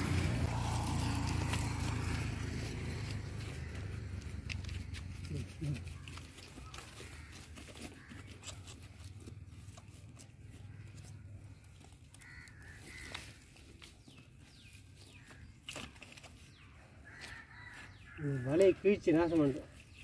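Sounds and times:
low outdoor rumble: 0.0 - 7.4.

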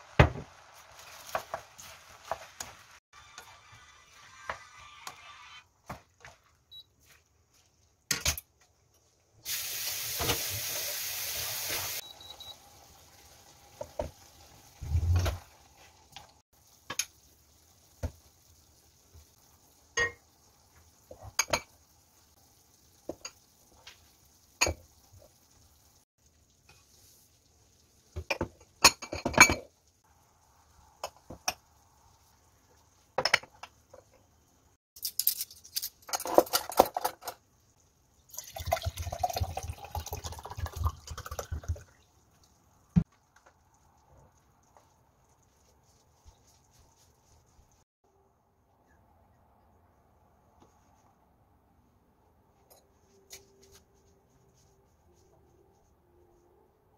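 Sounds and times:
pan sizzling: 0.0 - 7.9, 9.4 - 34.8
dishes and cutlery clinking: 28.3 - 29.7.

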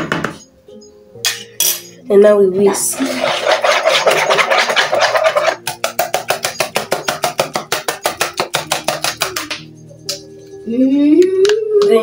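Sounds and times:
whisk beating batter in bowl: 2.7 - 10.5.

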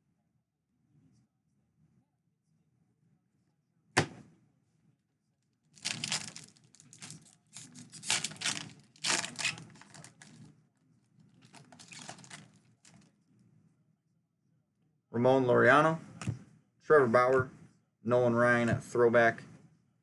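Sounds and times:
foil wrapper tearing and crinkling: 5.8 - 10.4, 11.4 - 13.0.

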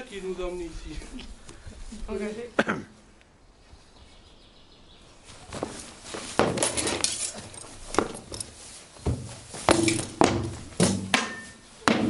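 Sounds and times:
feet shuffling in straw: 5.1 - 9.8.

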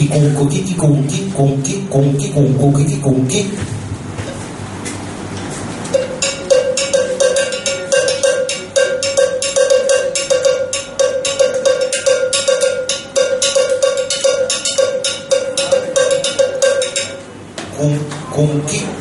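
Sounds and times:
cowbell struck with stick: 5.9 - 17.3.

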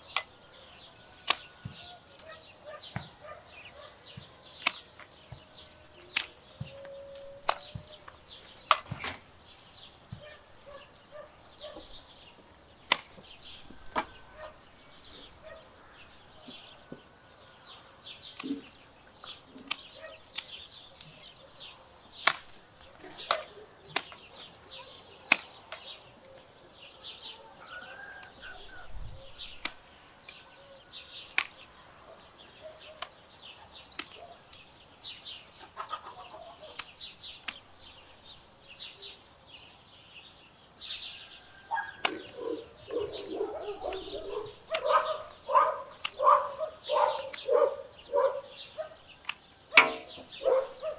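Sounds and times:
birds chirping: 0.0 - 50.9
pruning shears snipping: 1.2 - 3.1, 4.5 - 9.2, 12.8 - 14.6, 18.2 - 21.4, 22.2 - 26.4, 29.5 - 30.5, 31.2 - 35.2, 36.6 - 37.7, 41.9 - 47.8, 49.1 - 50.3.

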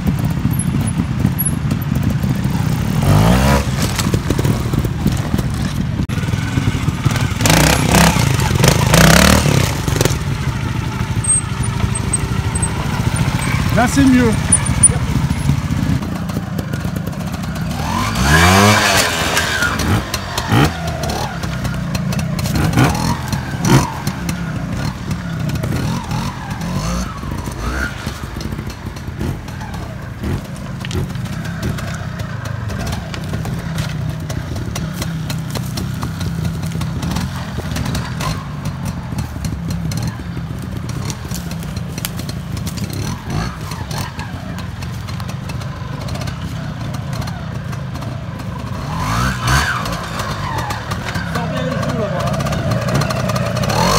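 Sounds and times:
motorcycle engine throttle blips: 3.8 - 18.2.

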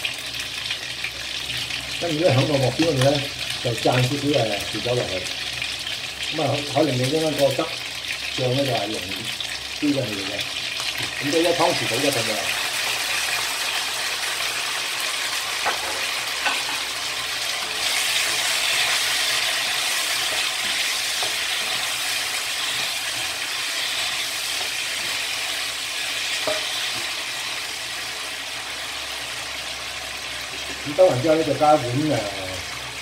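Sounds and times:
chicken wings sizzling in a wok: 0.0 - 33.0
spatula knocking against wok: 15.6 - 16.9, 26.4 - 26.7.

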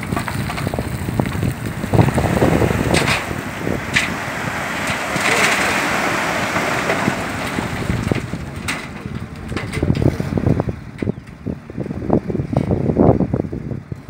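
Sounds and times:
soil and stones pouring: 0.0 - 9.6
low thumps and knocks: 0.0 - 12.9
truck engine running: 0.0 - 14.0.

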